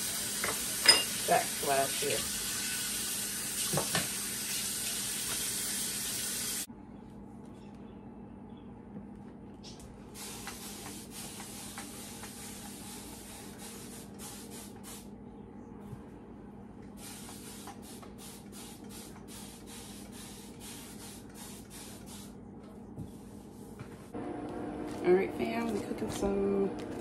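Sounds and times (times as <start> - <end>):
steady low hum: 6.7 - 27.0
spray bottle hissing bursts: 10.2 - 15.0, 17.0 - 22.3.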